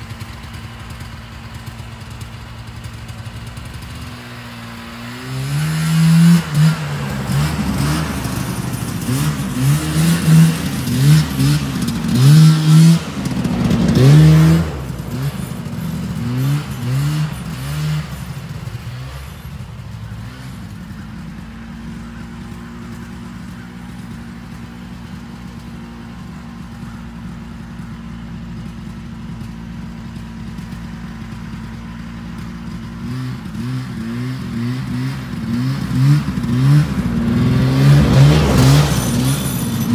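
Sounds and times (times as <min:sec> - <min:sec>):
snowmobile engine revving: 0:00.0 - 0:39.9.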